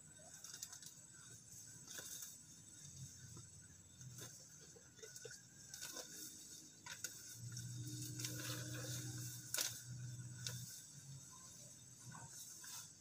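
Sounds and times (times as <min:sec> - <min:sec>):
low steady hum: 0:00.0 - 0:13.0
weeds rustling and snapping: 0:00.3 - 0:01.2, 0:01.8 - 0:02.6, 0:05.1 - 0:11.3.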